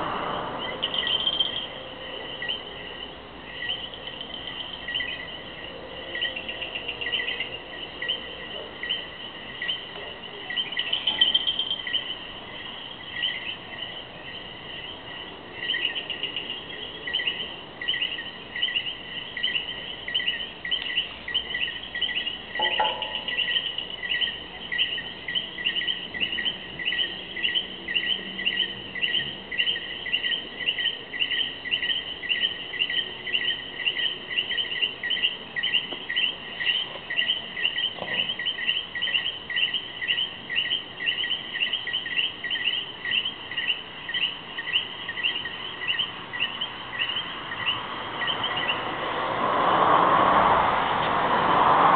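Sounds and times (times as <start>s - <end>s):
frogs chirping: 0.0s - 49.2s.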